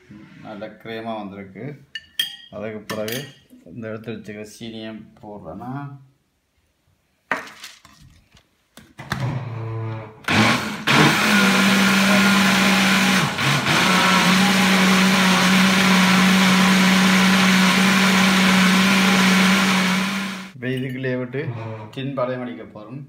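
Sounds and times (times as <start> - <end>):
electric blender running: 9.2 - 20.6.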